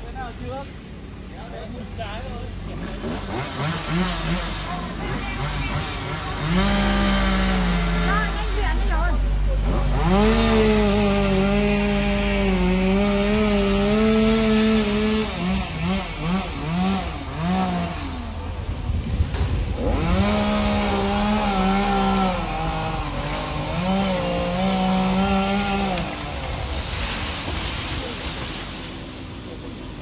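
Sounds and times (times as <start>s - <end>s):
chainsaw cutting: 2.6s - 30.0s.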